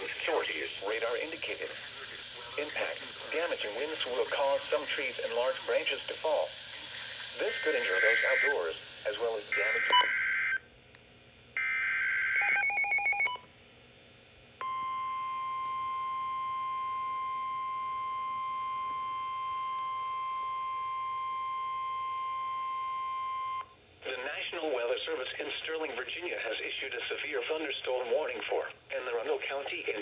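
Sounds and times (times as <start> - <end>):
steady warning alarm tone: 7.4 - 10.6, 11.6 - 13.4.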